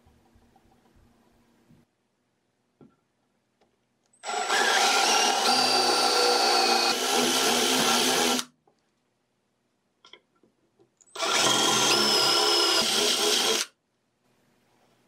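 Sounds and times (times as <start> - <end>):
power drill boring into wood: 4.2 - 8.5, 11.2 - 13.7.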